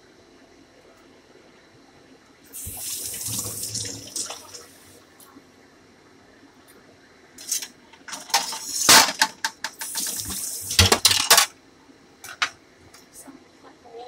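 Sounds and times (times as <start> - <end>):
metal kitchenware clattering: 7.4 - 11.5.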